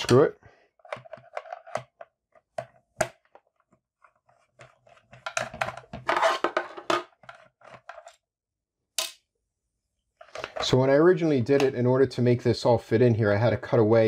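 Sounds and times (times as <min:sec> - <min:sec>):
plastic clattering on wooden desk: 0:00.8 - 0:03.4, 0:04.6 - 0:08.1.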